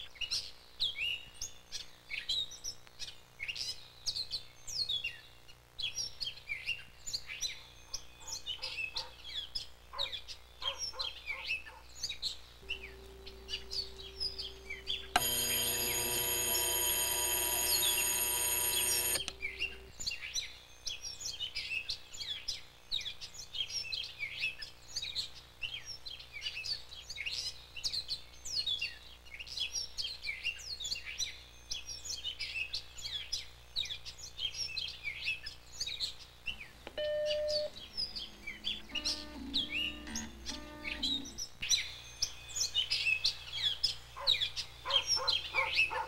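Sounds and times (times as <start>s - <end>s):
birds chirping: 10.0s - 20.2s, 36.5s - 46.0s
alarm clock ringing: 13.5s - 19.8s.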